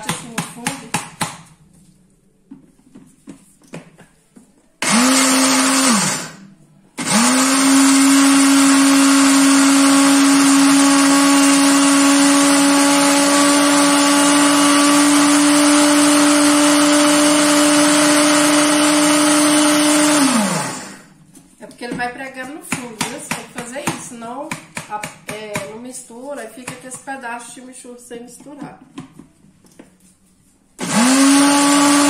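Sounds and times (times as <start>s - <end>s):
blender motor grinding: 4.8s - 21.1s, 30.8s - 32.0s.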